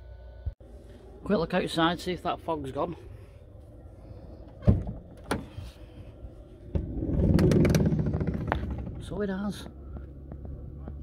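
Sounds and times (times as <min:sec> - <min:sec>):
sliding door rumbling open: 0:06.6 - 0:09.3.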